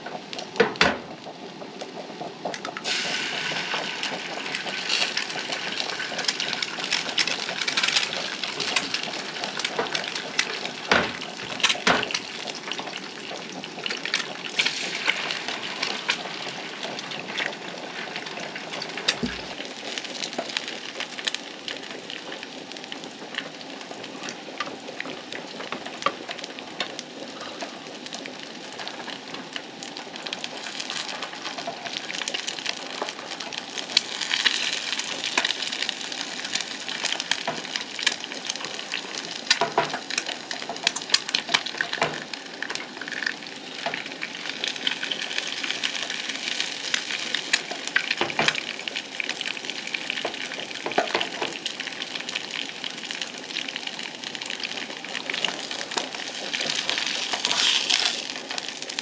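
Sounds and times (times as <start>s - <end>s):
food frying in a skillet: 0.0s - 59.0s.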